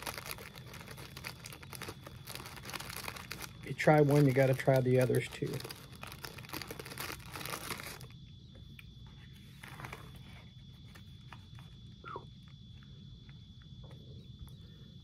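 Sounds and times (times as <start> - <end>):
plastic packaging crinkling: 0.0 - 8.2.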